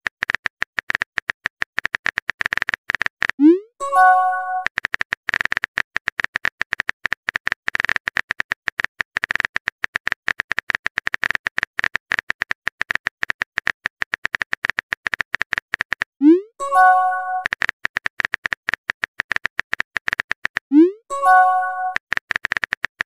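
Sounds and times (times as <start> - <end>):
message sent swoop tone: 3.4 - 4.7, 16.2 - 17.5, 20.7 - 22.0
phone keyboard typing clicks: 16.7 - 23.0.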